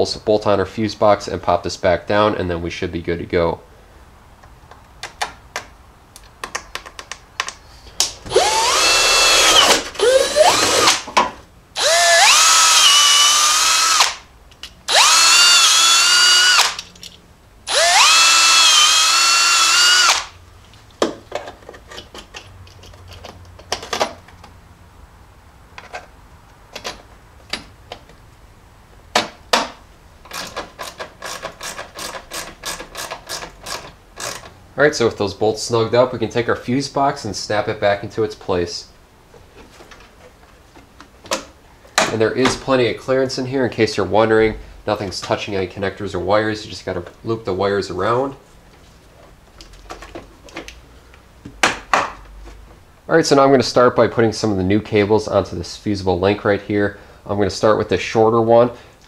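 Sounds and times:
cordless drill whining: 8.3s - 11.0s, 11.8s - 14.2s, 14.9s - 16.8s, 17.7s - 20.3s.

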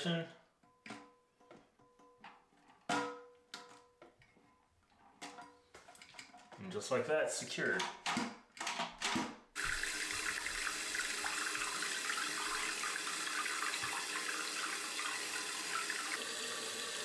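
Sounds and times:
toilet tank filling with water: 9.6s - 17.0s.

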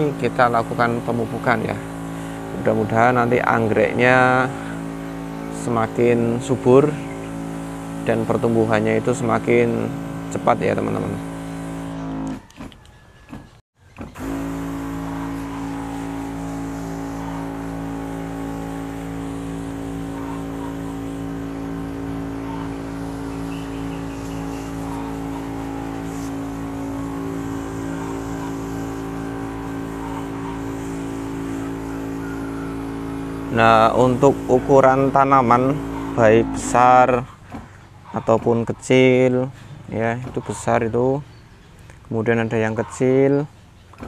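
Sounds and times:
mist spraying: 0.0s - 12.0s, 14.2s - 37.1s
sprayer pump motor humming: 0.0s - 41.2s.

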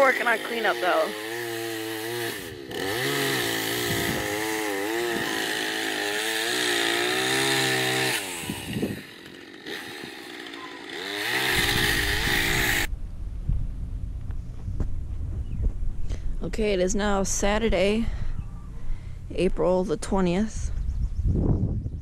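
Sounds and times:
chainsaw revving and cutting: 0.0s - 12.9s.

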